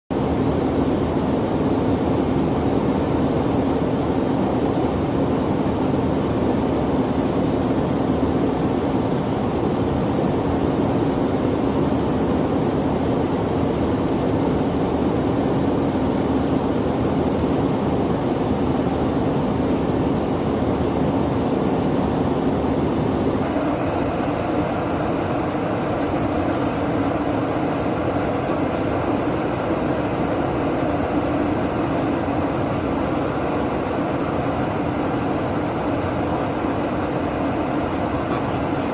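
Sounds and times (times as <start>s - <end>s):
aircraft engine and airflow drone: 0.1s - 38.9s.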